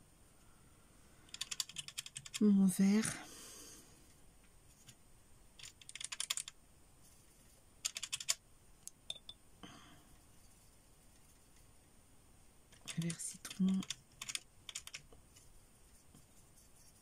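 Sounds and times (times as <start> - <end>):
brush scraping palette: 10.0 - 11.9, 15.1 - 17.0.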